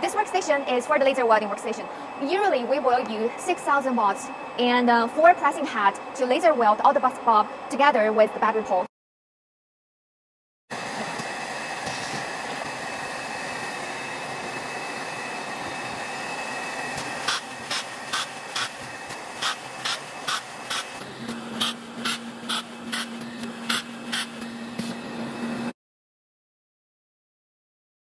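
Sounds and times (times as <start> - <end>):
machinery humming with faint whine: 0.0 - 8.9, 10.7 - 25.8
laser welder pulses: 10.8 - 25.7.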